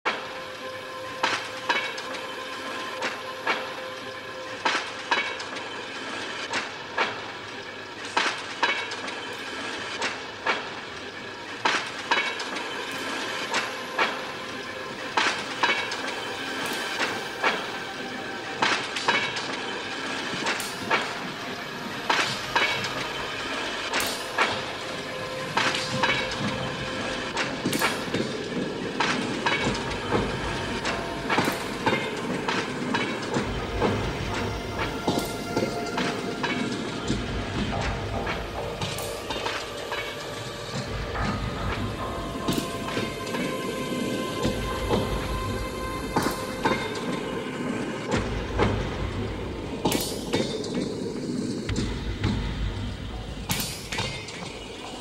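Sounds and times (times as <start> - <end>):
trolley wheels clacking on rail joints: 0.1 - 55.0
drone of held tones: 12.7 - 55.0.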